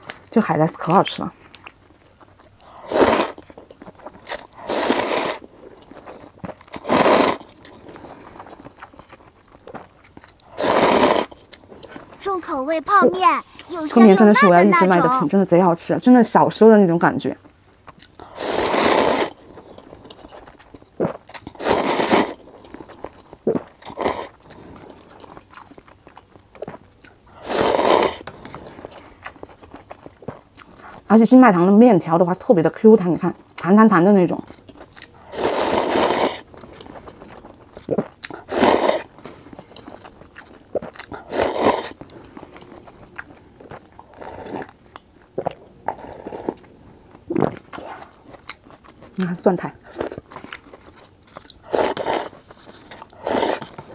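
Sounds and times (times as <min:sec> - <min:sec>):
quiet chewing: 0:01.2 - 0:15.2, 0:17.4 - 0:31.1, 0:32.3 - 0:53.9
person sipping broth: 0:02.6 - 0:03.4, 0:04.2 - 0:12.2, 0:18.0 - 0:22.7, 0:27.4 - 0:29.3, 0:35.2 - 0:37.2, 0:37.8 - 0:44.8, 0:51.6 - 0:53.9
person slurping noodles: 0:02.6 - 0:03.4, 0:04.3 - 0:05.5, 0:06.7 - 0:08.5, 0:10.5 - 0:11.3, 0:18.2 - 0:19.4, 0:21.0 - 0:22.5, 0:23.5 - 0:24.7, 0:27.4 - 0:28.3, 0:35.2 - 0:36.5, 0:37.9 - 0:39.1, 0:40.8 - 0:42.0, 0:44.0 - 0:44.8, 0:45.4 - 0:46.6, 0:51.6 - 0:52.4, 0:53.0 - 0:53.9.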